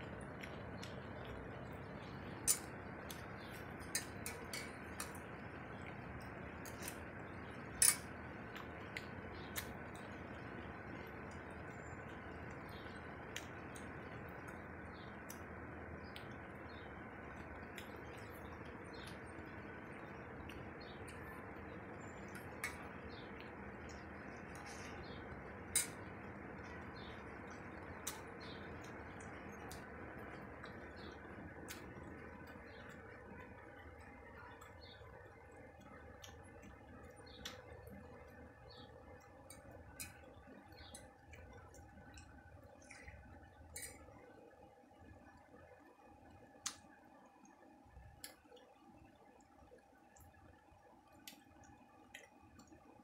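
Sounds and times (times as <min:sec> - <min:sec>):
faint steady hiss: 0:00.0 - 0:53.0
eating clicks and taps: 0:02.4 - 0:21.3.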